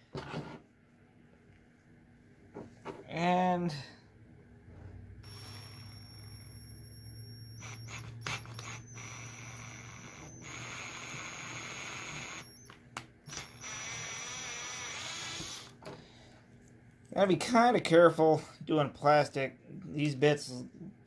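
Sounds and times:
cordless drill whining: 5.2 - 15.8.

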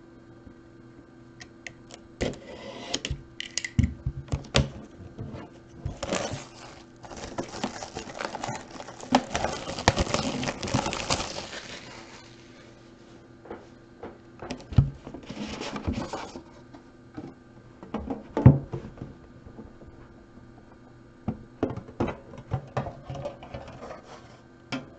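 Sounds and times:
plastic wrap crinkling: 5.9 - 12.7.

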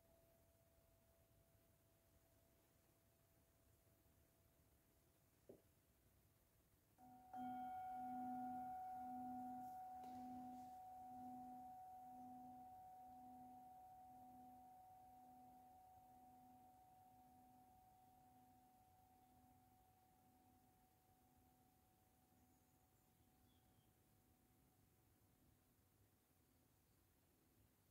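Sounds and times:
metal singing bowl ringing: 7.0 - 21.6.

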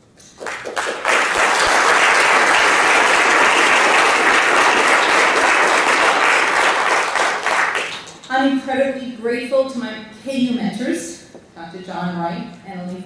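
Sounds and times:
audience applauding: 0.3 - 8.3.

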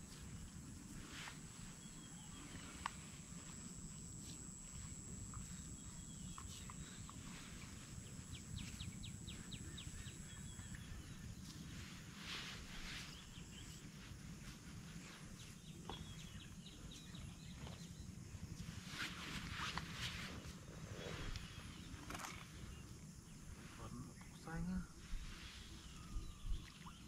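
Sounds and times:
high thin insect-like tone: 0.0 - 27.0
birds chirping: 1.6 - 11.5.

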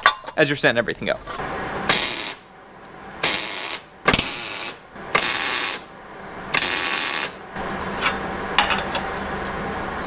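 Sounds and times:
welder arc crackling: 1.8 - 2.5, 3.2 - 5.9, 6.5 - 7.4.

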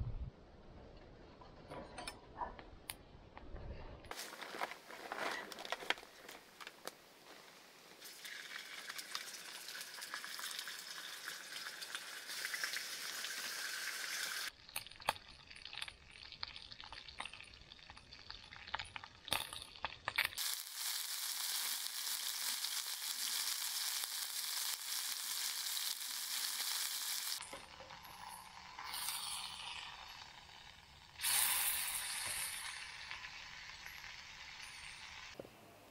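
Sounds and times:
clicks and crackles: 1.7 - 7.0, 14.6 - 20.7
food sizzling in a pan: 8.0 - 14.6, 20.4 - 35.4.

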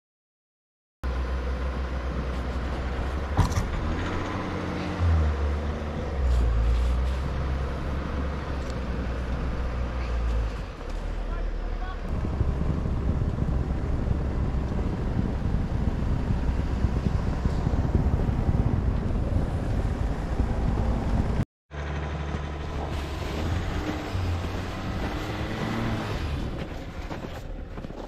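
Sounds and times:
truck engine and tyre rumble: 1.0 - 28.0
wind buffeting microphone: 12.1 - 21.4, 22.7 - 28.0.

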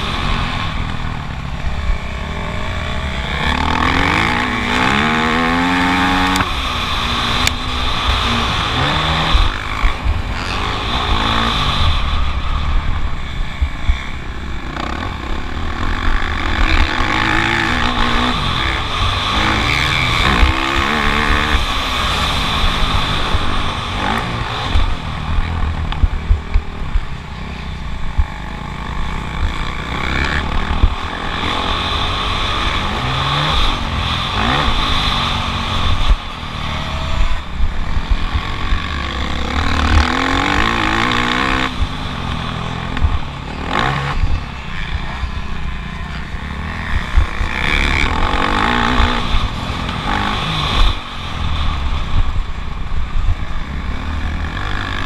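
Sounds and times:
motocross bike engine racing: 0.0 - 55.0
wind rumble on microphone: 0.0 - 55.0.

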